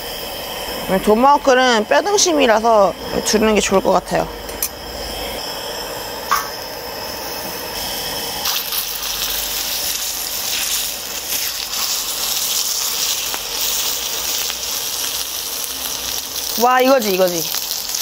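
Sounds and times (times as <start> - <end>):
meat sizzling on a griddle: 4.8 - 18.0.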